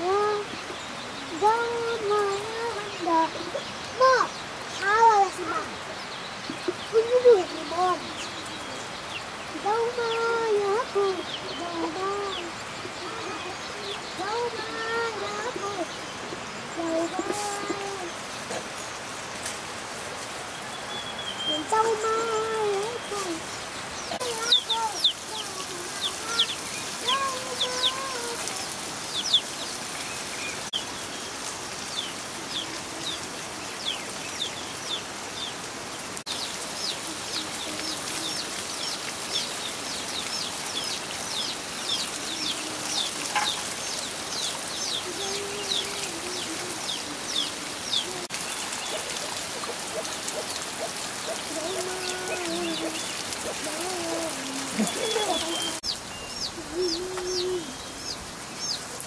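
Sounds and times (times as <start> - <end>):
water pouring and splashing on stone: 21.6 - 33.2, 36.2 - 56.1
bird chirping: 36.3 - 59.0.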